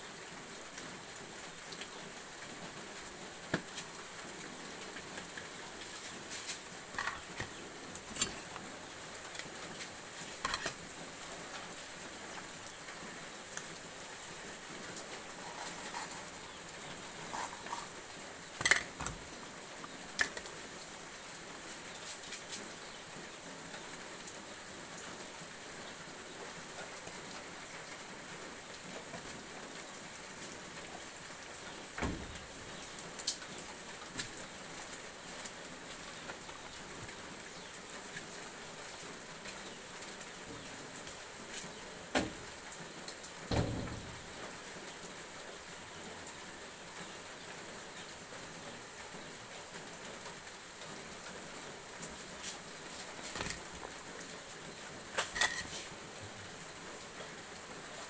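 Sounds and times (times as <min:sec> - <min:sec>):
steady hiss: 0:00.0 - 0:58.0
kitchen things clattering: 0:06.9 - 0:08.6, 0:15.3 - 0:18.0, 0:18.6 - 0:19.2, 0:55.2 - 0:55.8.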